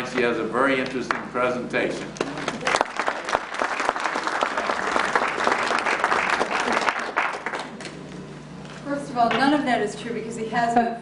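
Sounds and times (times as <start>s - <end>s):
audience applauding: 2.2s - 8.0s.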